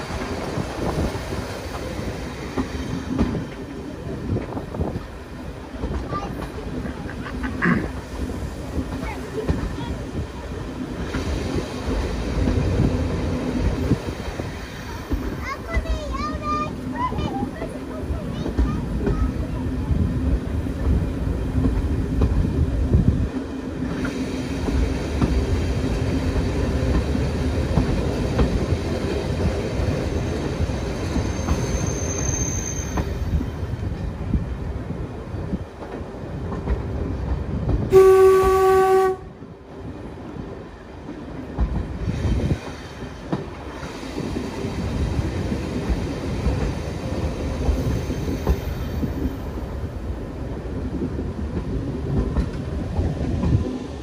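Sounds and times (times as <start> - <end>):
train rumble and wheel clatter: 0.0 - 54.0
train horn: 37.9 - 39.4.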